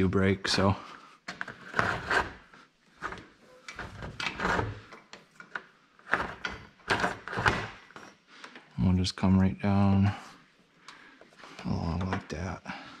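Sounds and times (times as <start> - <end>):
rubs scrapes and knocks on padding: 1.4 - 4.9, 6.0 - 7.8.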